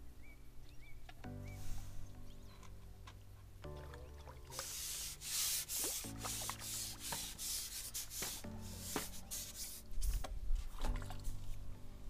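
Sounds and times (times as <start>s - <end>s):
background music with held chords: 0.0s - 12.0s
rough rubbing noise: 4.5s - 10.3s.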